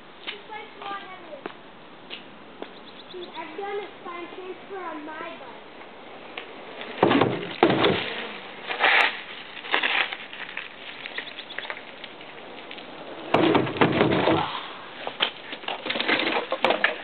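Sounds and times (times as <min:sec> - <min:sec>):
wheels rolling on wooden ramp: 0:06.2 - 0:17.0
heavy thuds: 0:07.0 - 0:08.3.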